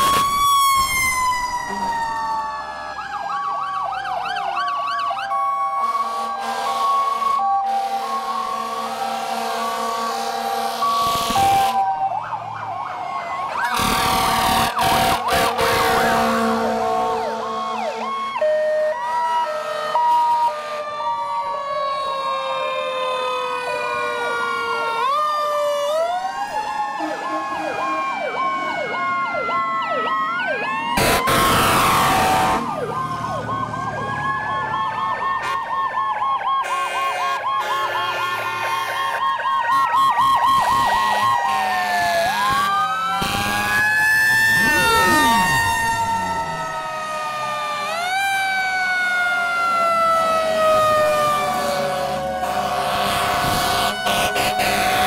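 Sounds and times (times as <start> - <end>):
fire truck sirens wailing: 0.0 - 55.0
air horn blasts: 5.9 - 7.0, 7.7 - 11.8, 13.6 - 17.6, 35.4 - 35.7, 36.6 - 39.2, 42.5 - 43.8, 52.4 - 55.0.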